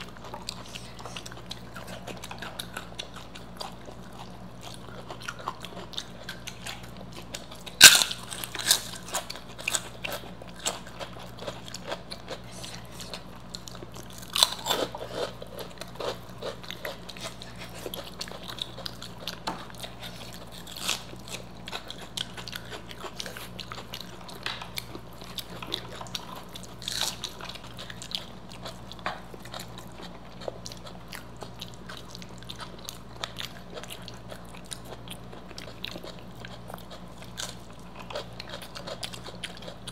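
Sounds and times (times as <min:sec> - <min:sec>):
crunching fried food: 0:00.0 - 0:39.9
steady chewing: 0:00.0 - 0:39.9.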